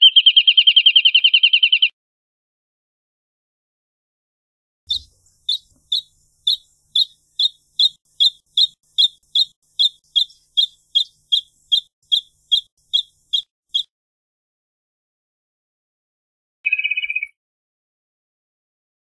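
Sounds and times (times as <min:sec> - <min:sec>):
bird singing short clear notes: 0:04.9 - 0:13.9.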